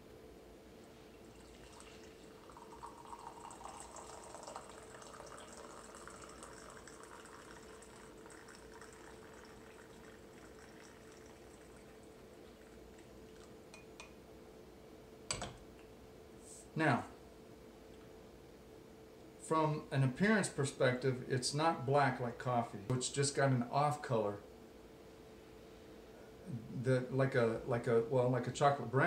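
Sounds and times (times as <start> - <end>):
liquid pouring into mug: 1.2 - 14.2.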